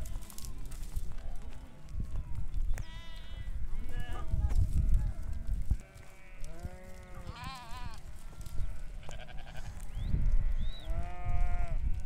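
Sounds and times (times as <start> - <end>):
sheep bleating: 2.8 - 5.2, 5.8 - 12.0.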